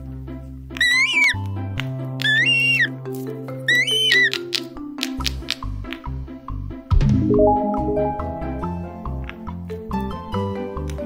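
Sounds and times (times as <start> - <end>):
squeaky cartoon sound effect: 2.3 - 2.9, 3.7 - 4.4
upbeat music with steady beat: 7.2 - 8.9.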